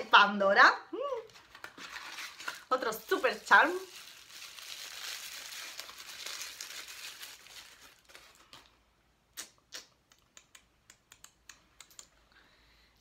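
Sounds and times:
packaging rustling and crinkling: 0:01.3 - 0:08.8.

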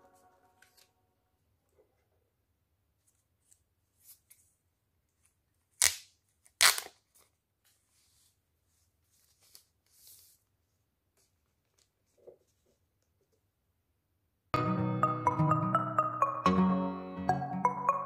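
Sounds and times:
plastic film ripping: 0:05.8 - 0:07.0.

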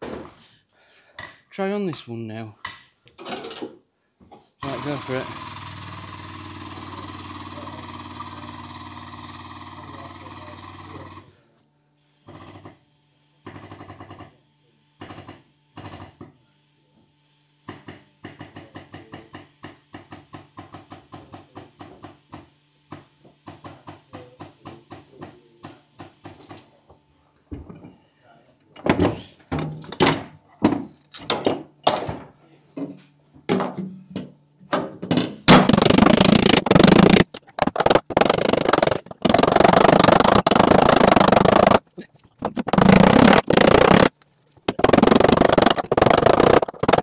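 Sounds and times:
hydraulic pump running: 0:04.6 - 0:11.2, 0:35.5 - 0:47.0.

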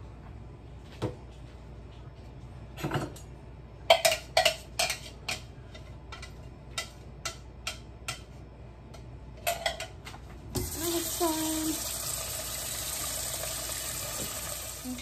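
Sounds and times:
kitchen utensils clicking and tapping: 0:03.9 - 0:10.7.

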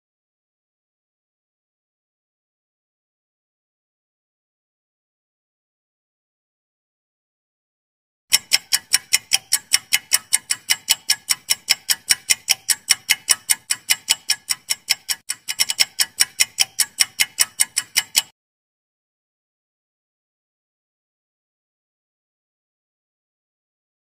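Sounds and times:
clock ticking: 0:08.3 - 0:18.3.

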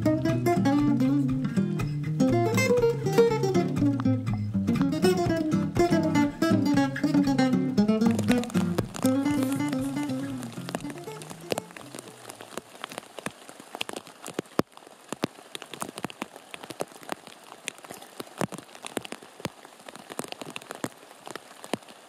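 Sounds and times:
rain falling on river: 0:00.0 - 0:22.0.

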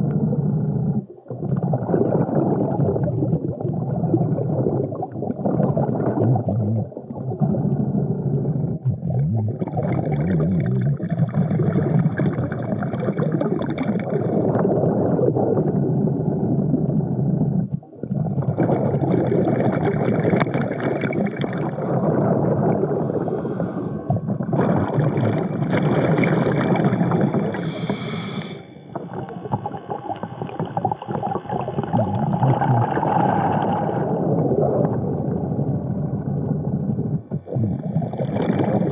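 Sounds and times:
constant bubbling rumble: 0:00.0 - 0:38.9
diver breathing underwater: 0:21.6 - 0:34.5, 0:37.0 - 0:38.9.

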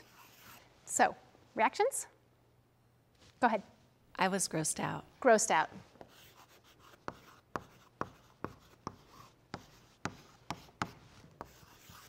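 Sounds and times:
chalk tapping and scratching: 0:00.0 - 0:00.6, 0:06.0 - 0:12.0.

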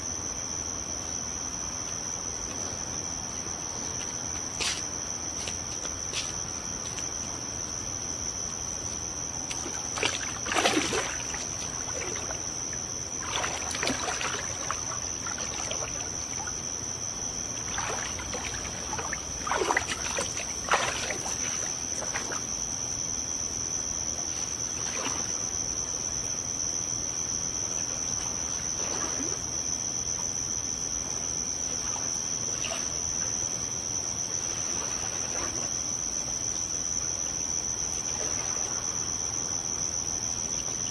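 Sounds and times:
crickets chirring: 0:00.0 - 0:40.9
water splashing in pool: 0:09.4 - 0:22.6.

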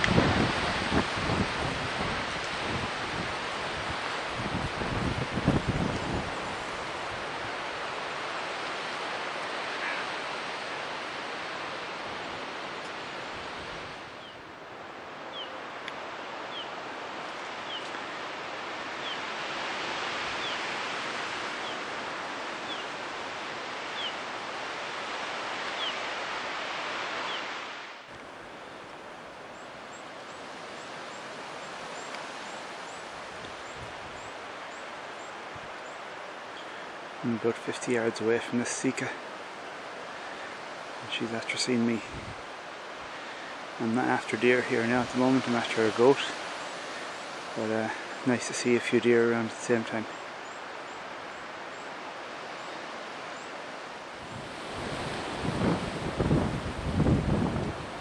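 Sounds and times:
very high ticking bird calls: 0:15.3 - 0:15.8, 0:16.4 - 0:16.8, 0:17.6 - 0:18.1, 0:19.0 - 0:19.3, 0:20.4 - 0:20.7, 0:21.5 - 0:21.9, 0:22.6 - 0:23.0, 0:23.9 - 0:24.2, 0:25.7 - 0:26.0, 0:27.2 - 0:27.5, 0:29.5 - 0:36.8.

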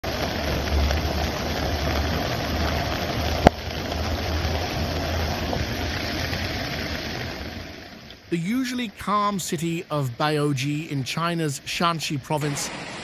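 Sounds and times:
wind rumble on microphone: 0:00.0 - 0:07.8
floodwater rushing: 0:00.0 - 0:13.0.

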